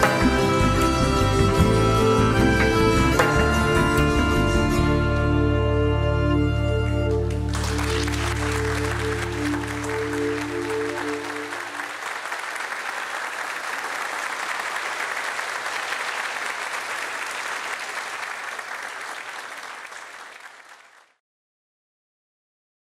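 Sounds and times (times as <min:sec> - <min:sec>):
audience applauding: 0:07.2 - 0:21.2.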